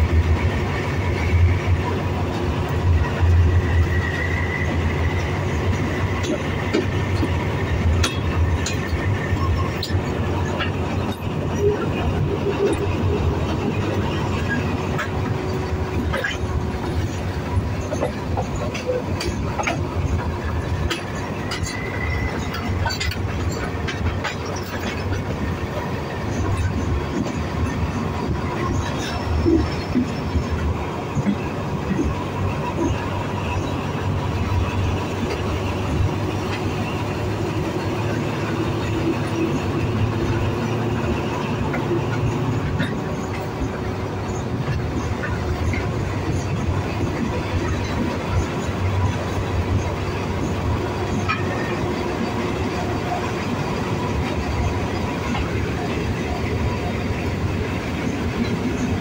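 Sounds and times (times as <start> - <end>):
locomotive engine drone: 0.0 - 59.0
wheels clicking over rail joints: 0.0 - 59.0
faint wheel squeal: 21.3 - 23.6.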